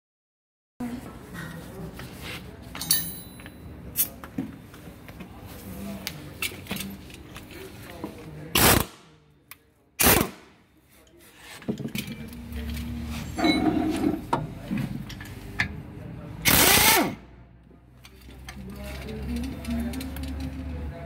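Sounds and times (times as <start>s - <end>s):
pneumatic impact wrench bursts: 8.6s - 9.0s, 10.0s - 10.4s, 16.4s - 17.2s.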